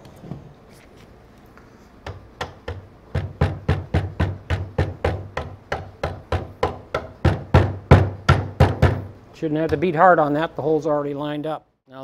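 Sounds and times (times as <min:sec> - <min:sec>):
rubber mallet tapping bolts: 0:02.0 - 0:09.1.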